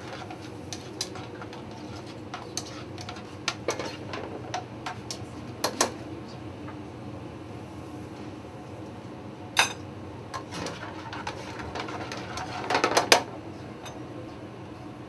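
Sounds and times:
low background hum: 0:00.0 - 0:15.0.

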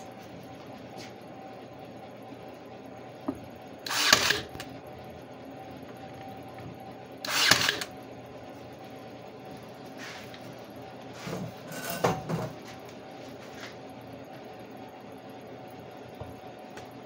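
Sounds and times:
brad nailer firing: 0:03.8 - 0:04.6, 0:07.2 - 0:07.9.

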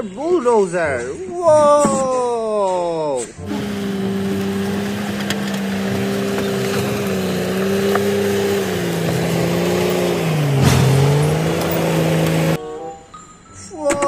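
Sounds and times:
blade pushing concrete and dirt: 0:03.4 - 0:12.6
bulldozer diesel engine under load: 0:03.4 - 0:12.6.

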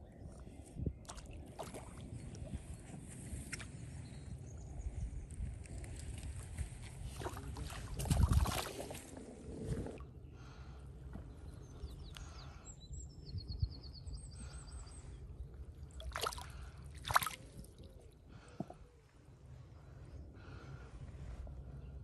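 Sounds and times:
sharp splashes: 0:01.1 - 0:02.0, 0:07.2 - 0:09.0, 0:16.0 - 0:17.8
water sloshing: 0:16.0 - 0:17.8.

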